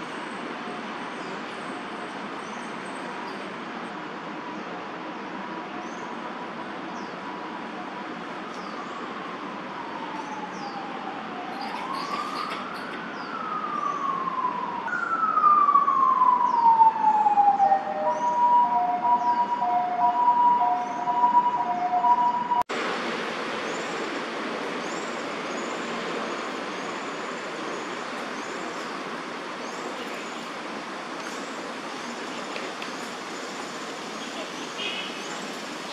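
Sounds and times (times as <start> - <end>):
city traffic hum: 0.0 - 35.9
emergency vehicle siren: 7.5 - 22.7.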